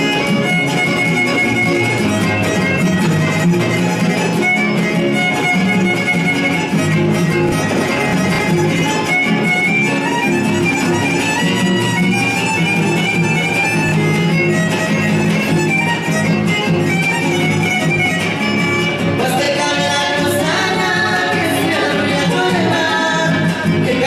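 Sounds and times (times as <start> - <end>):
guitars strumming chords: 0.0 - 24.0
violin playing quick melody: 0.1 - 19.0.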